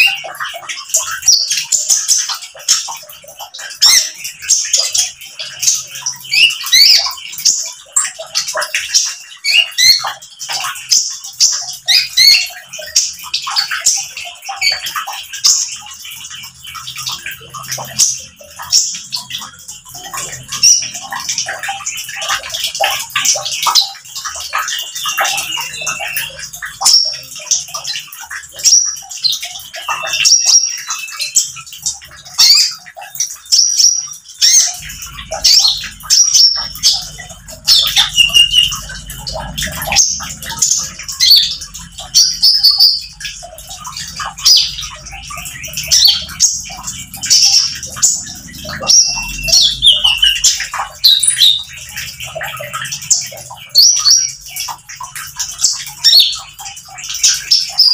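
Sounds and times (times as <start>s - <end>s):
bird singing high chirps: 33.5s - 51.8s.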